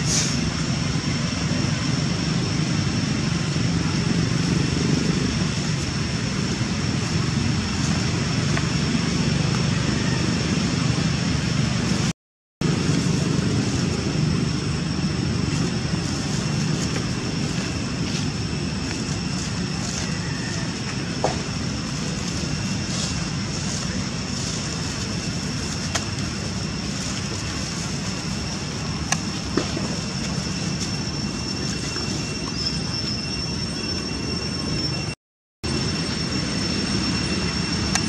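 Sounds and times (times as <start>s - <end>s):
high-pitched hum: 0.0s - 38.0s.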